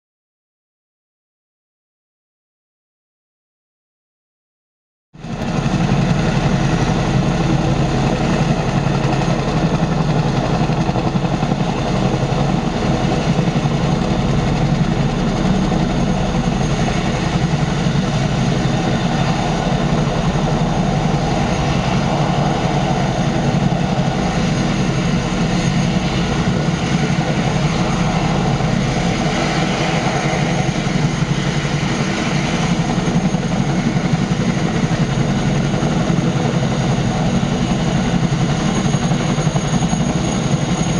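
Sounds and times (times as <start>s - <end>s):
helicopter rotor beat: 5.2s - 40.9s
turbine engine whine: 5.2s - 40.9s.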